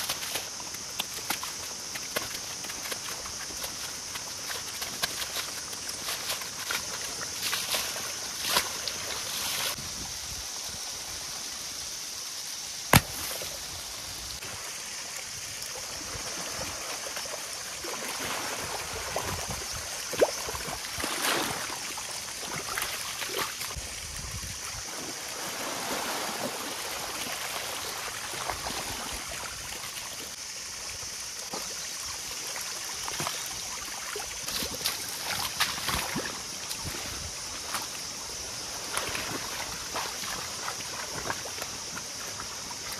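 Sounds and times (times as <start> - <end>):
muddy water sloshing: 0.0 - 9.8, 16.0 - 23.8, 33.0 - 42.9.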